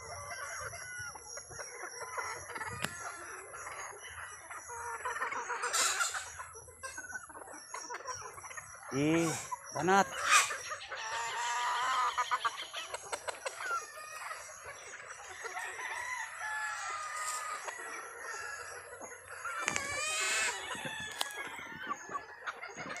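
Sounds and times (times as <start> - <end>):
chickens clucking: 0.0 - 23.0
rooster crowing: 15.2 - 22.8.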